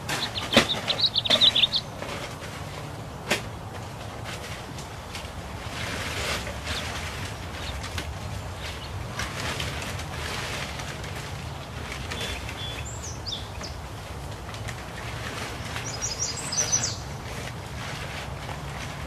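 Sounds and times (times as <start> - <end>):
small bird chirping: 0.0 - 2.0, 12.2 - 13.8, 15.7 - 17.1.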